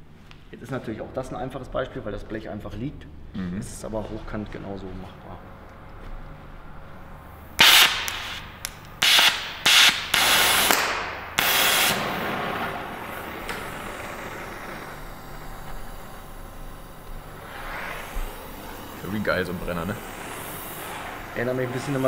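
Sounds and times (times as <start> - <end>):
gas flame whooshes: 5.1 - 22.0
torch flame hissing: 6.5 - 22.0.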